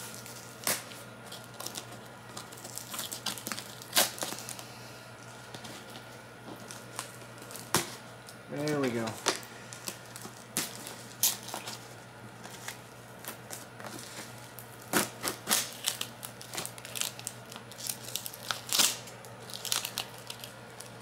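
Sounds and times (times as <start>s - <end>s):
box cutter slitting packing tape: 14.9s - 20.0s.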